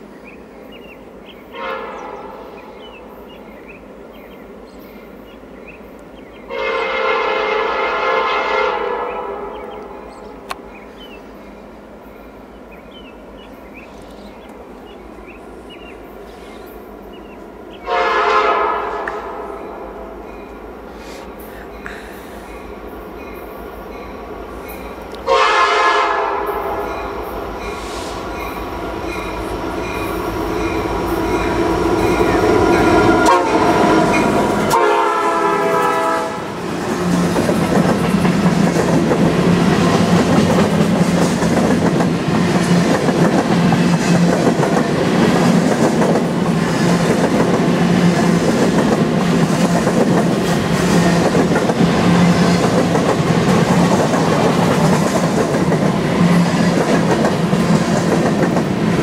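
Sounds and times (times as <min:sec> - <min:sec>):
train air horn blasts: 0:01.5 - 0:02.6, 0:06.5 - 0:09.8, 0:17.8 - 0:20.1, 0:25.2 - 0:27.2, 0:31.4 - 0:36.6
locomotives passing: 0:18.8 - 0:59.0
train wheels clattering on rails: 0:35.7 - 0:59.0.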